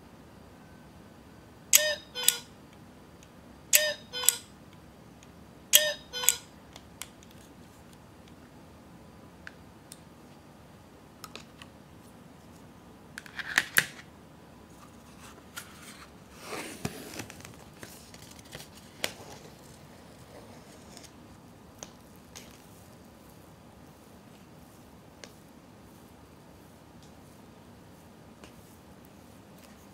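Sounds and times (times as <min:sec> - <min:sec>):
paper crinkling rustle: 0:14.8 - 0:21.2.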